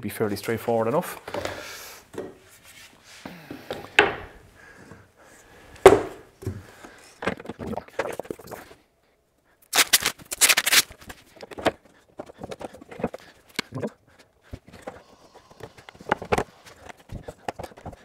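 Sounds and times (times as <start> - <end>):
plastic sheet rattling and flexing: 9.8 - 11.6.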